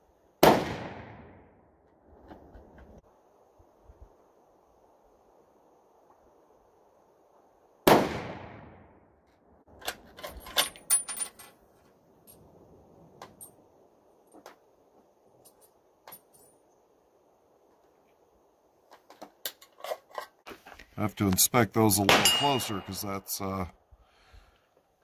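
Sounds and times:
rifle shot: 0.4 - 1.5, 7.8 - 8.9, 22.1 - 22.4.

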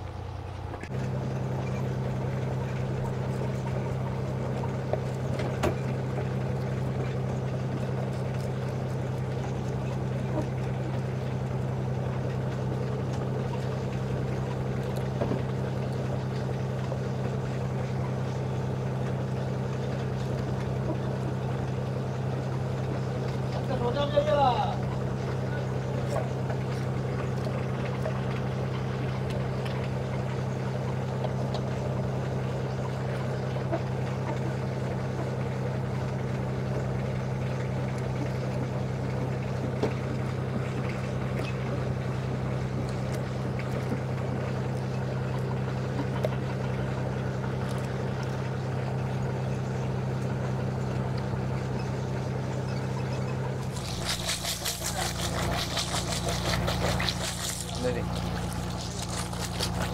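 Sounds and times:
boat engine droning: 0.0 - 59.9
water pouring and splashing: 53.6 - 59.9.

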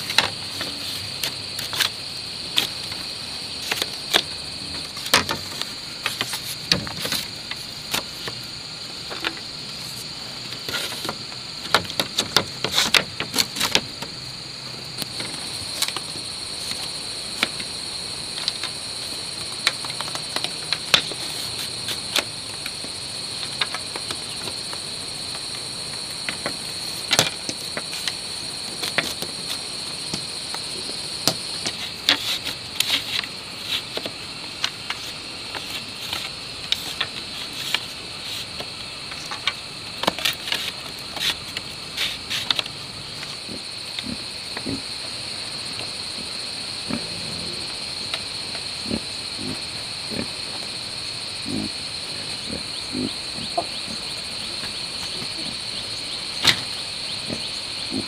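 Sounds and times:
bamboo strips clacking: 0.0 - 3.0, 3.6 - 14.2, 15.0 - 30.6, 31.2 - 44.8
high-pitched insect drone: 0.0 - 58.0.

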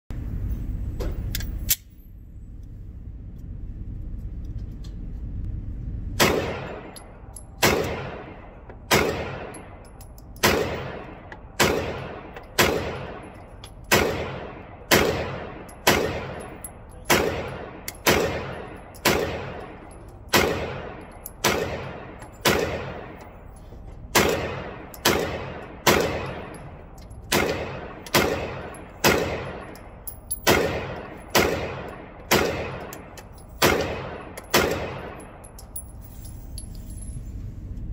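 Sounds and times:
pistol shots echoing indoors: 6.2 - 23.3, 24.1 - 35.5.

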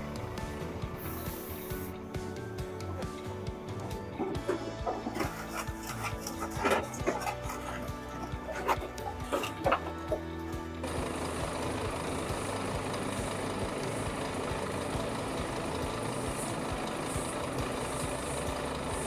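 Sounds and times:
truck diesel engine idling: 0.0 - 19.0
brush sweeping: 4.9 - 7.9.

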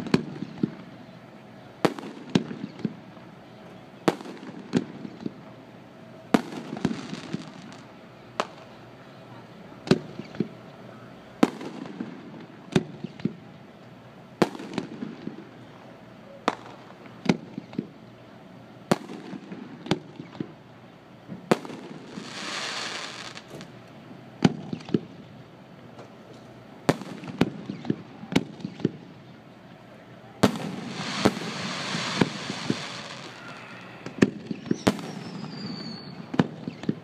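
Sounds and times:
firework hissing: 21.7 - 23.7, 30.4 - 36.3
firework shells bursting: 30.4 - 37.0.

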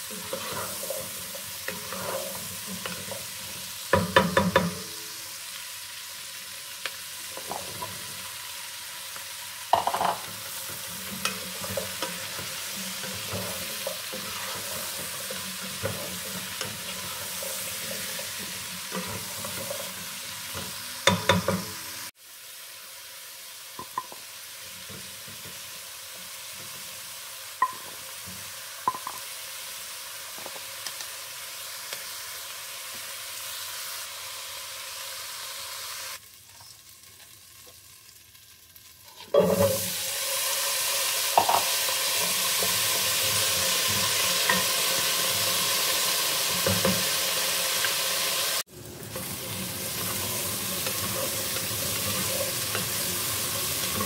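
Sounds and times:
vegetables sizzling in oil: 0.0 - 54.0.

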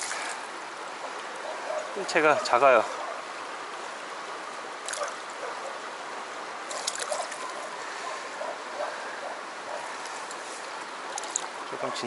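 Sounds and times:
stream running over stones: 0.0 - 12.0
splashing at landing net: 6.7 - 7.6.

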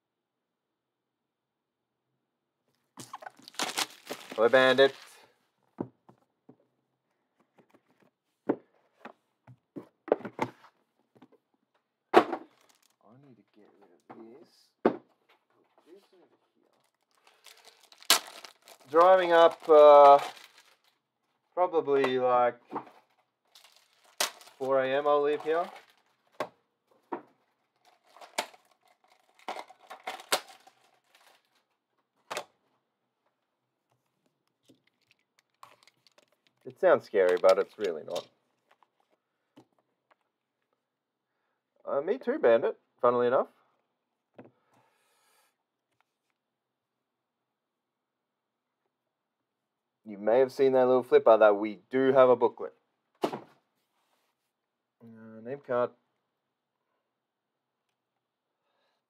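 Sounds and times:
wrapping crinkling and tearing: 3.0 - 5.3, 12.5 - 13.0, 16.6 - 21.0, 23.1 - 26.4, 27.6 - 31.8, 34.1 - 39.2.

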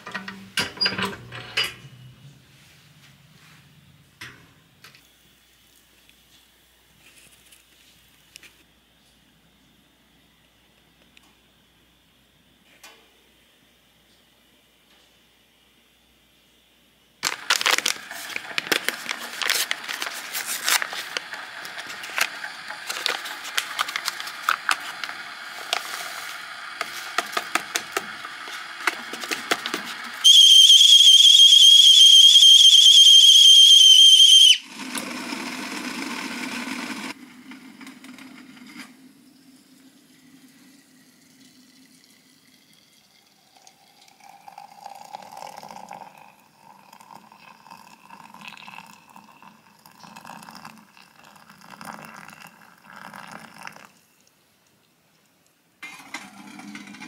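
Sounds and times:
kettle whistling: 17.2 - 37.2
water poured into a mug: 39.7 - 54.3.

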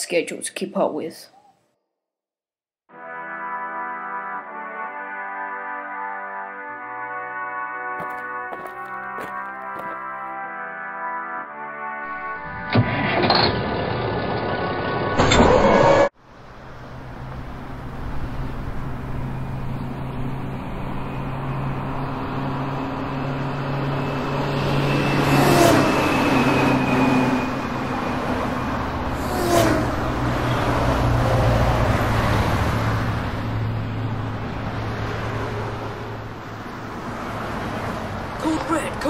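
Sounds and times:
vehicles passing by: 16.2 - 39.0.

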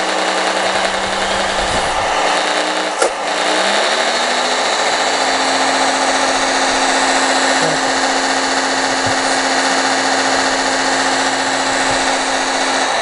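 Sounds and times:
simulated diesel engine: 0.0 - 13.0
mechanical whine and hiss: 0.2 - 13.0.

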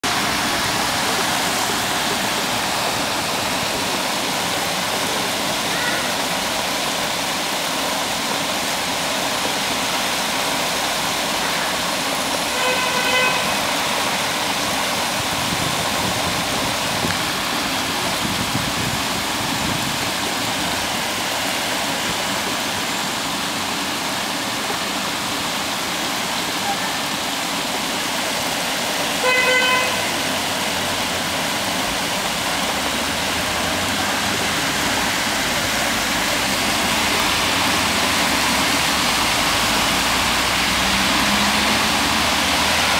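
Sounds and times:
floodwater rushing: 0.0 - 42.9
vehicle horn toots: 12.4 - 13.7, 29.2 - 30.3.

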